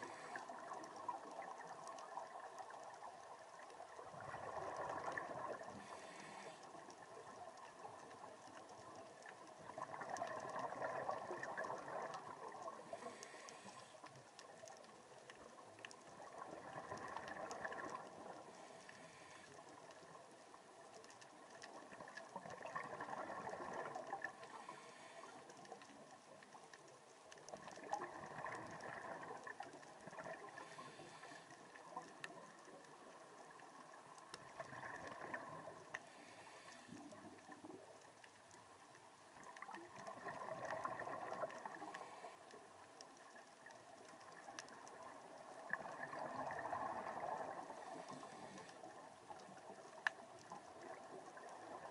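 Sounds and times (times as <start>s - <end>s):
diver breathing through regulator: 0.0s - 0.5s, 5.8s - 6.8s, 12.9s - 14.1s, 18.6s - 19.6s, 24.5s - 25.5s, 30.5s - 31.5s, 36.1s - 37.1s, 47.8s - 48.8s.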